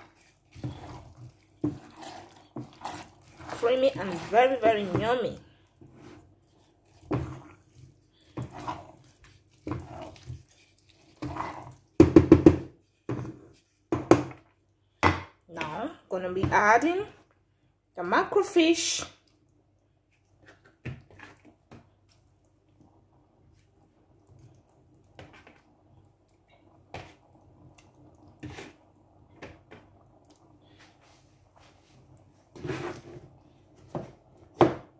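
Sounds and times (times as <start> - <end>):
spoon stirring thick rice: 0.0 - 14.5, 19.2 - 34.6
spoon knocking on pot: 12.0 - 12.7.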